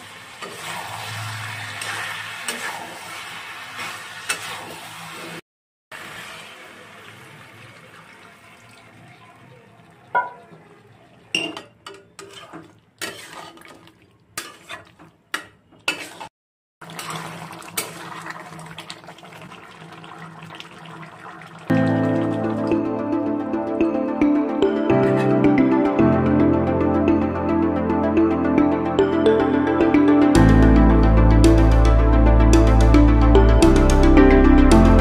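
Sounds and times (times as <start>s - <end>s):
curry sizzling in a pan: 0.0s - 11.1s, 12.1s - 21.7s
metal spatula scraping a pan: 0.3s - 5.4s, 11.4s - 16.3s, 24.9s - 25.4s.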